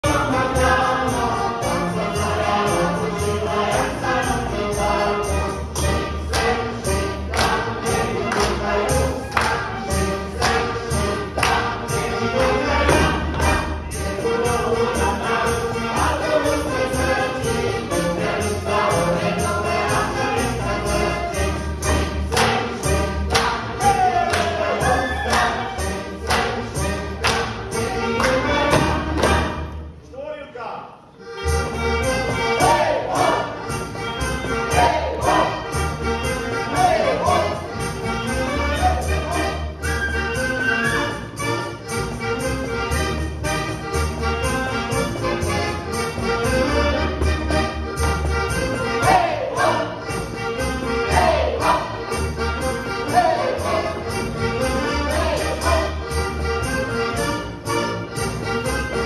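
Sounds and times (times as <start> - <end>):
group of voices singing: 0.0 - 29.7, 32.0 - 41.0, 48.4 - 56.3
folk band playing: 0.0 - 30.0, 31.0 - 59.0
sharp rhythmic beats: 0.0 - 30.0, 31.2 - 59.0.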